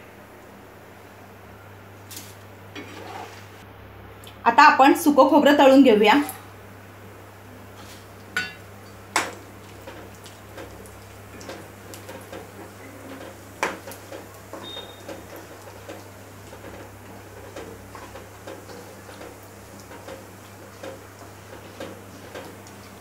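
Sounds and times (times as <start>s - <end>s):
slices frying in hot oil: 6.0s - 23.0s.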